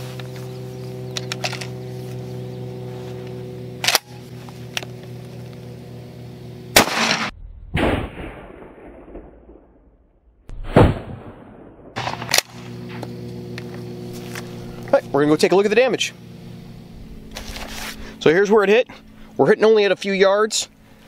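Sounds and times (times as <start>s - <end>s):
electrical hum: 0.0s - 7.3s, 12.0s - 21.0s
shotgun shot: 6.7s - 9.8s, 10.5s - 12.7s
slowed down boom: 6.7s - 13.1s.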